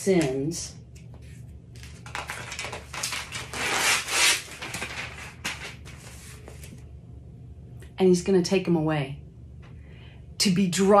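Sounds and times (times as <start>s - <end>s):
paper rustling and crackling: 1.1s - 6.8s.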